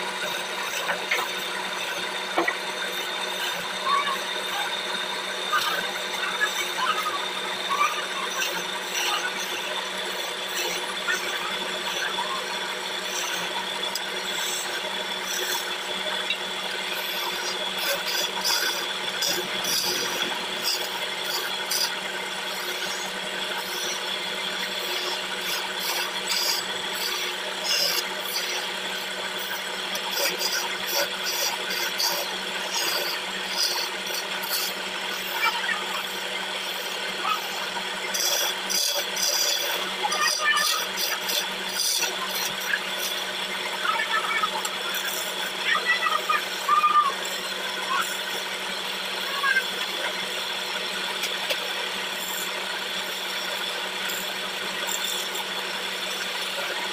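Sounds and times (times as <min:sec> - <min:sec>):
chisel scraping spinning wood: 0:00.0 - 0:56.9
wood lathe humming: 0:00.0 - 0:56.9.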